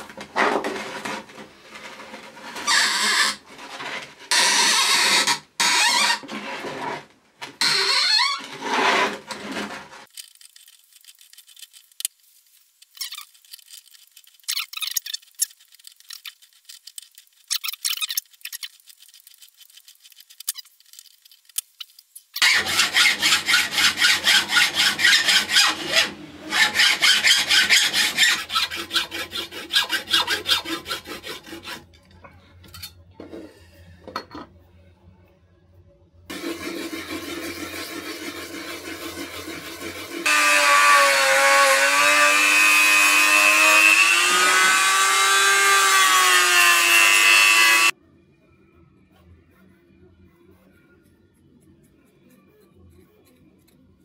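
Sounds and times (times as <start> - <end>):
power tool grinding: 22.4 - 31.9, 36.3 - 47.9
saw rasping on metal: 22.4 - 31.9, 36.3 - 47.9.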